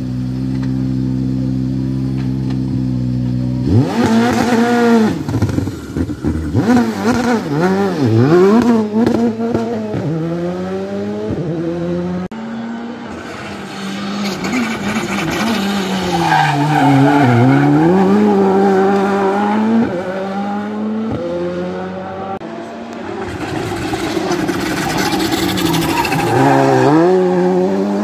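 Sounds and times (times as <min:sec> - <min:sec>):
rally car engines revving: 0:00.0 - 0:28.0
tyres squealing: 0:23.8 - 0:27.2.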